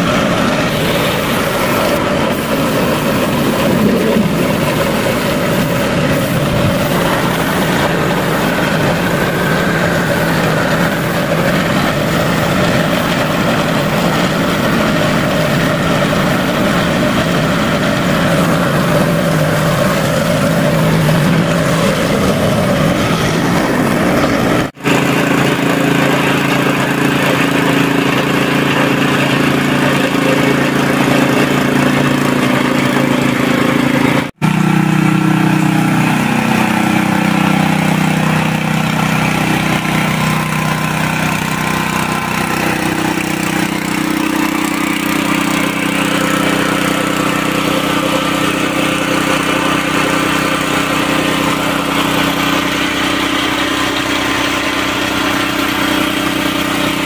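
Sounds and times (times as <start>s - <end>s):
spray gun hissing: 0.0s - 25.3s
air compressor running: 0.0s - 57.0s.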